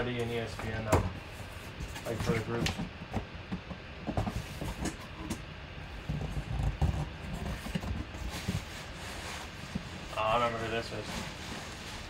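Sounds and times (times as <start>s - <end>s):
cardboard scraping and rustling: 1.4s - 3.2s, 4.1s - 5.1s, 6.0s - 12.0s.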